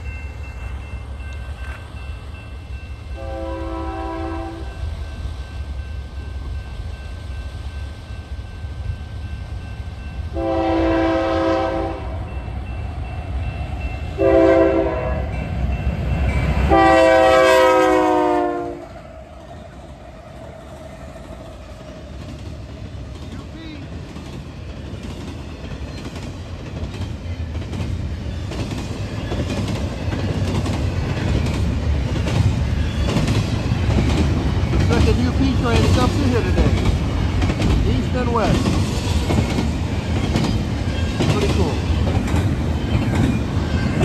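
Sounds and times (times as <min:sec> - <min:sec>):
diesel locomotive rumble: 0:00.0 - 0:44.0
locomotive air horn blasts: 0:03.2 - 0:04.8, 0:10.3 - 0:12.2, 0:14.2 - 0:15.4, 0:16.7 - 0:18.9.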